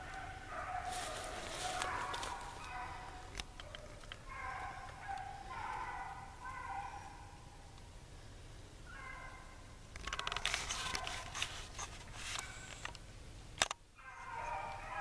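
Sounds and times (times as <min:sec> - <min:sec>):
hounds baying in distance: 0:00.0 - 0:07.6, 0:08.8 - 0:11.5, 0:14.0 - 0:15.0
dry brush crackling and snapping: 0:00.8 - 0:05.0, 0:10.0 - 0:12.9.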